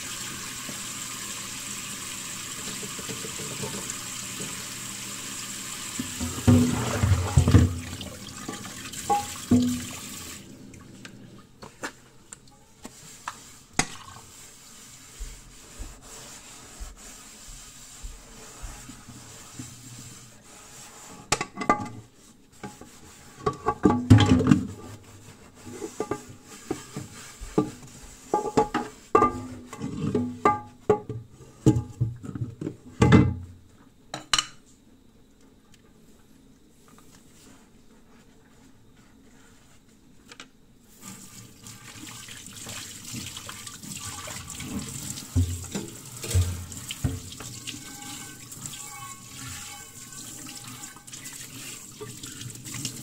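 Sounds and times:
running water: 0.0 - 11.3, 41.0 - 53.0
kitchenware clattering and knocking: 6.2 - 10.0, 23.5 - 24.7.

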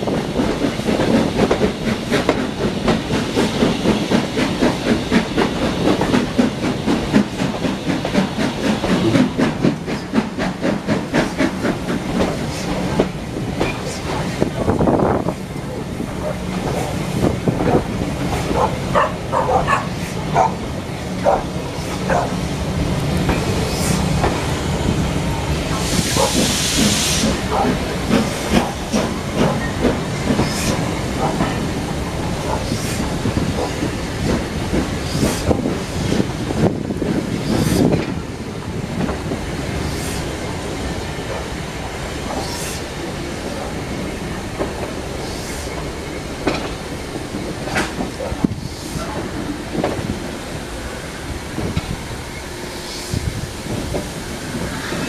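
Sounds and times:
steam hissing: 0.0 - 55.0
train rumbling: 0.0 - 55.0
wheels clicking over rail joints: 25.7 - 38.3, 44.5 - 50.2.

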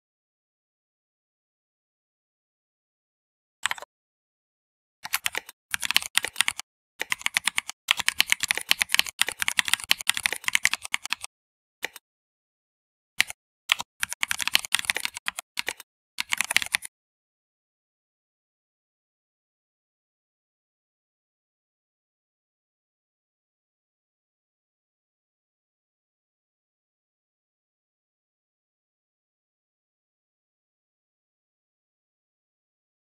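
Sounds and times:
keyboard typing: 3.6 - 3.9, 5.0 - 12.0, 13.2 - 16.9.

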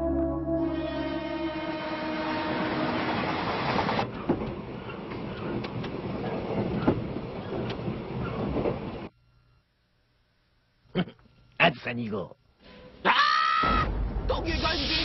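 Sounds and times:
music: 0.0 - 3.2
train rumbling on rails: 0.9 - 9.1
wheels clicking over rail joints: 3.7 - 9.1.

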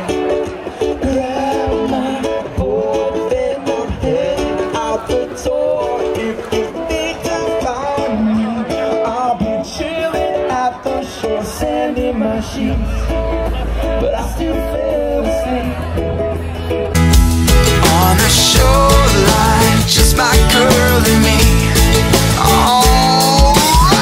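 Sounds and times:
upbeat guitar song: 0.0 - 24.0
deep bass: 12.2 - 24.0
drum hits: 17.0 - 24.0.

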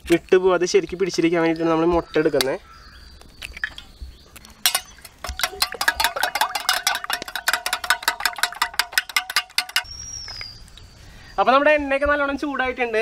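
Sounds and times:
spoon clinking against metal bowl: 4.6 - 9.9.

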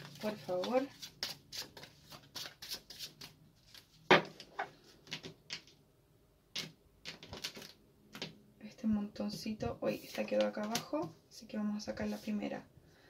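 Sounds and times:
cards shuffling taps and slaps: 6.6 - 8.4.

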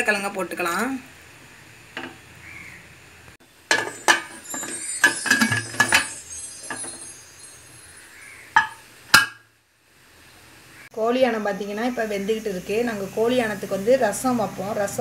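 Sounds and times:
utensil clinking on metal pot: 3.7 - 7.2, 8.6 - 9.4.

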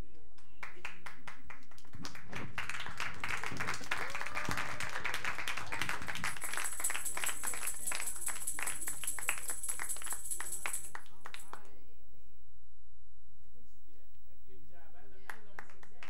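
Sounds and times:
audience applauding: 0.6 - 11.5.

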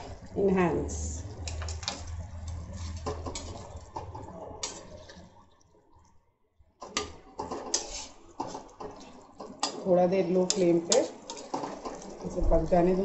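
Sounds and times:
low hum: 0.0 - 6.3
spatula stirring thick gravy: 1.2 - 5.2, 6.9 - 13.0.

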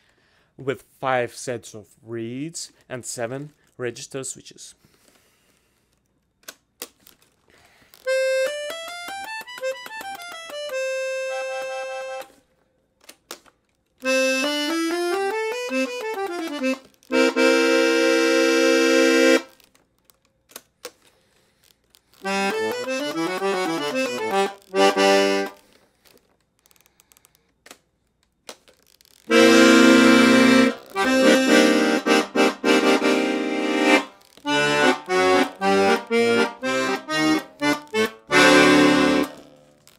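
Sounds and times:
accordion bass runs and chords: 8.1 - 12.3, 14.0 - 19.6, 22.2 - 25.6, 29.3 - 39.8.

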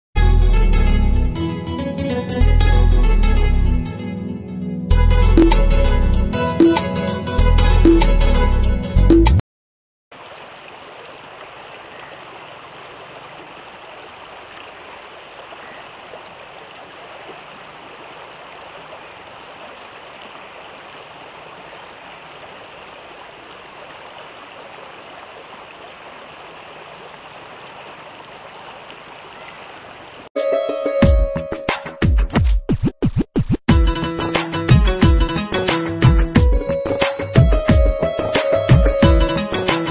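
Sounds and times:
river water rushing: 10.2 - 30.3.

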